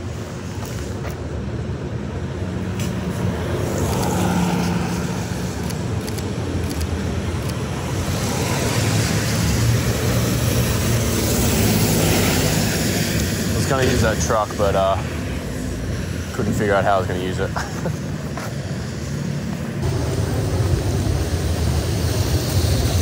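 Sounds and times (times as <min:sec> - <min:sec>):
road noise: 0:00.0 - 0:23.0
vehicle engines running: 0:00.0 - 0:23.0.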